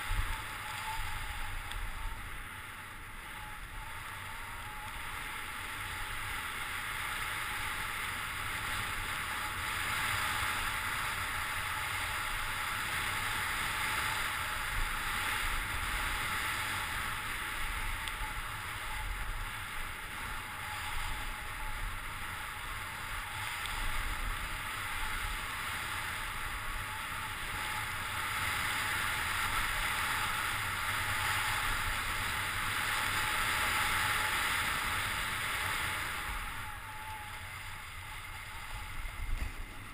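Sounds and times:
wind rumbling on microphone: 0.0 - 39.9.

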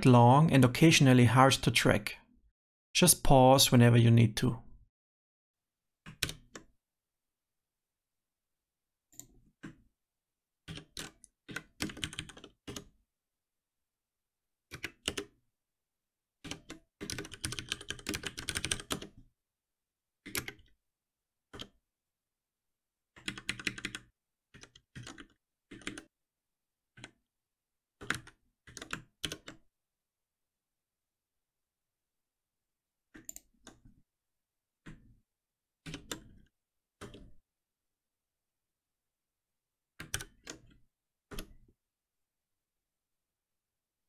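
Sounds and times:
computer keyboard typing: 10.7 - 12.9, 14.7 - 15.3, 16.4 - 19.2, 20.3 - 20.7, 23.2 - 26.1, 28.0 - 29.6, 40.0 - 41.6.

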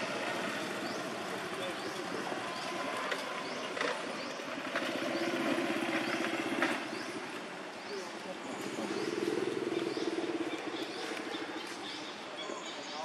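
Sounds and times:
engine running: 0.0 - 7.8.

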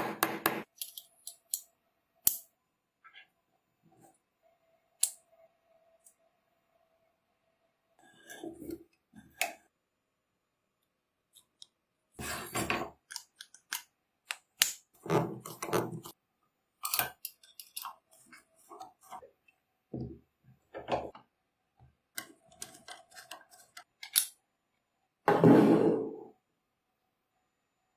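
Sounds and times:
small steel parts clicking: 0.7 - 2.5, 16.8 - 18.0.

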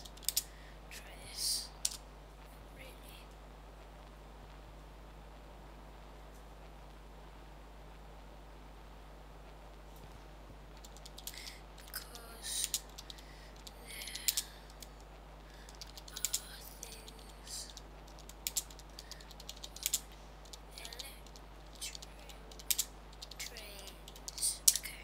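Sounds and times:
computer keyboard typing: 0.0 - 0.5, 10.8 - 15.0, 15.6 - 25.0
low steady hum: 0.0 - 25.0.

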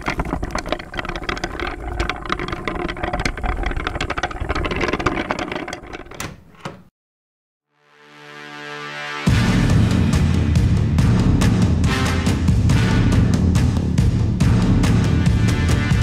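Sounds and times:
small hard objects clattering: 0.0 - 6.2.

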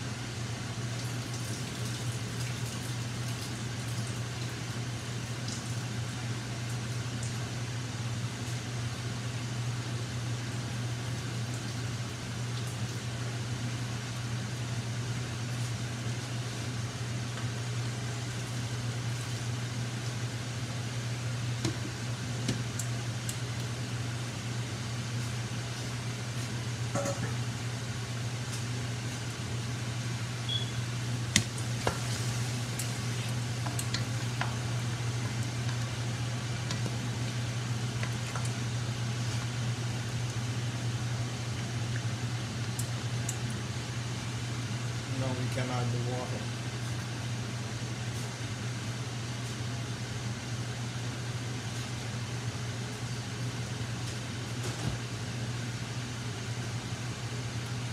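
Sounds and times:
kitchen exhaust fan hum: 0.0 - 57.9
meat simmering in sauce: 30.5 - 43.6.

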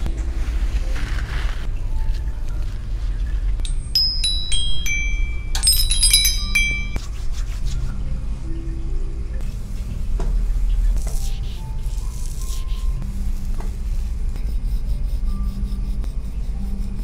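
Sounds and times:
small metal bells ringing: 3.6 - 7.0.

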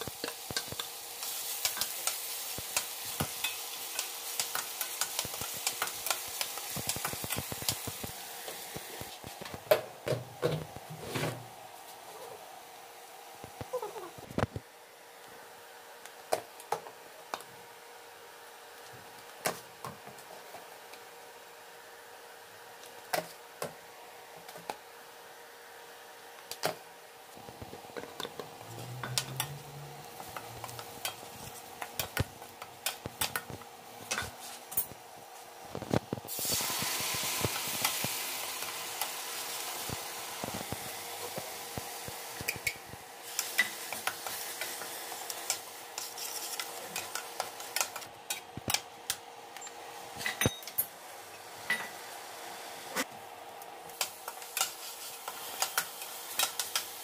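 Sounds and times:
masala sizzling in hot oil: 0.0 - 9.4, 27.0 - 49.0, 50.9 - 57.0.

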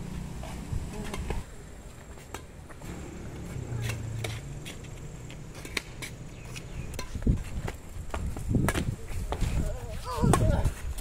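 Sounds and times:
shoes scuffing on concrete: 3.5 - 11.0
racket hitting shuttlecock: 5.5 - 7.3.

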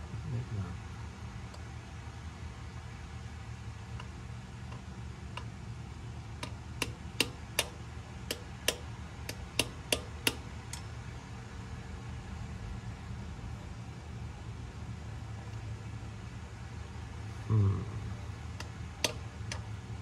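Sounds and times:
steady low hum: 0.0 - 20.0
hammer tapping metal socket: 6.4 - 10.8, 18.6 - 19.6.

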